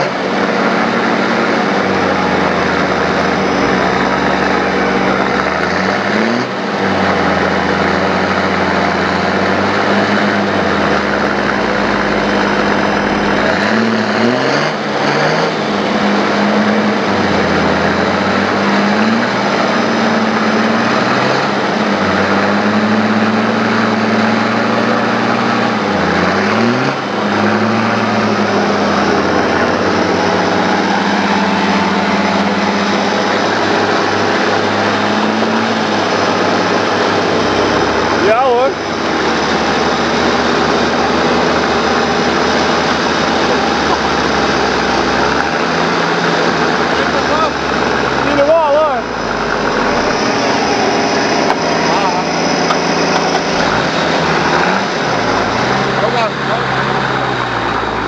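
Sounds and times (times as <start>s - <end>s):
off-road engine revving under load: 0.0s - 58.0s.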